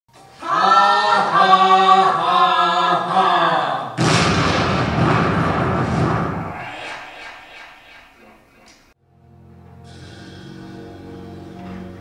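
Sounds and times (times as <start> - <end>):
loud deep crash: 4.0 - 8.5.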